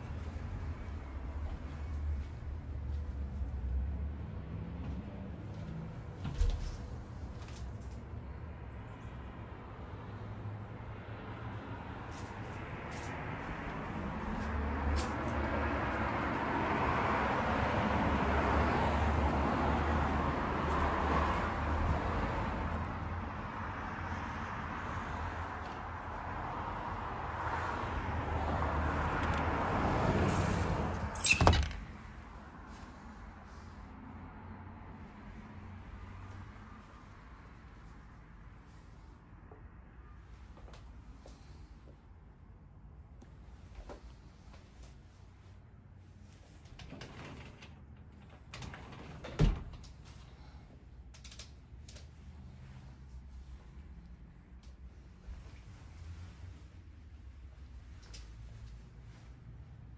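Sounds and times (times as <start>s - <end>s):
street traffic noise: 0.0s - 59.9s
sliding glass door banging shut: 31.2s - 31.9s.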